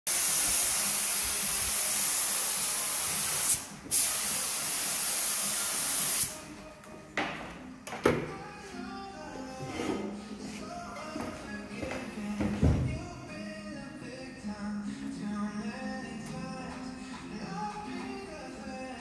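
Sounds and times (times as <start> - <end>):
spray gun hissing: 0.1 - 6.4.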